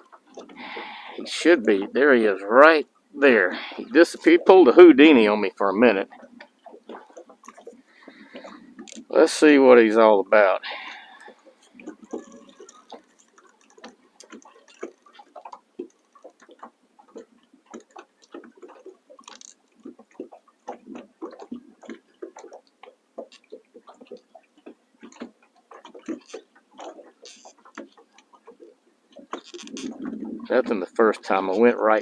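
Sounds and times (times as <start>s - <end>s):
faint clicks and taps: 11.2s - 30.2s.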